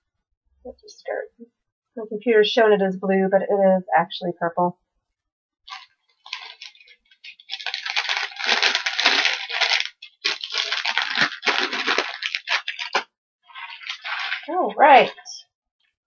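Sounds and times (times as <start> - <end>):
plastic packaging crinkling: 5.7 - 15.4.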